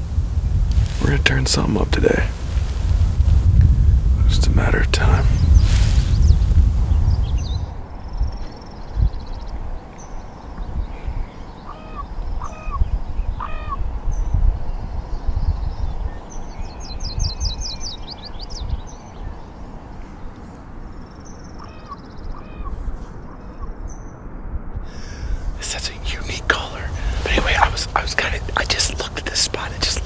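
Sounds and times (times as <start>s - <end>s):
wind on microphone: 0.0s - 30.0s
birds whistling: 5.3s - 20.4s, 21.0s - 24.2s
bird trill: 11.2s - 14.3s, 21.0s - 24.3s.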